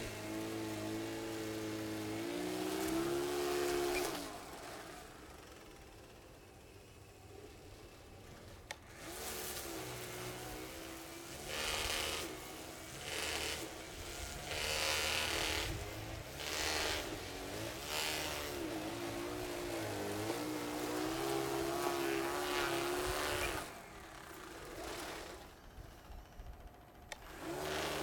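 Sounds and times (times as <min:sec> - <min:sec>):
rushing snow bursts: 0:00.0 - 0:05.7, 0:09.0 - 0:25.5
electric motors whining: 0:00.0 - 0:28.0.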